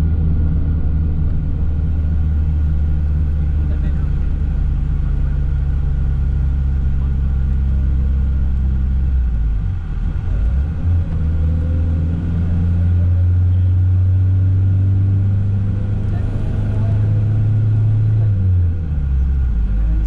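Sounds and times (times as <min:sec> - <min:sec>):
car engine and road noise: 0:00.0 - 0:20.0.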